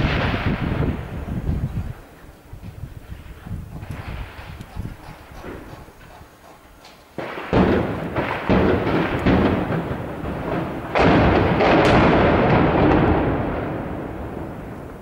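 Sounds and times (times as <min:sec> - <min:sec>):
shell blasts echoing: 0:07.2 - 0:14.9.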